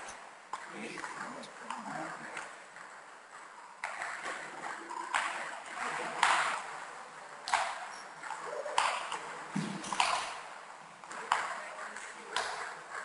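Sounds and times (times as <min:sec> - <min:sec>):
table tennis ball clicks: 0:03.8 - 0:06.7, 0:07.4 - 0:11.6.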